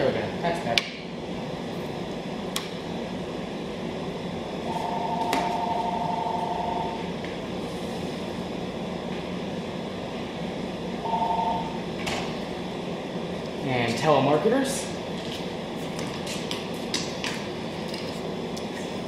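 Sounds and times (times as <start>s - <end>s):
ventilation hum: 0.0s - 19.0s.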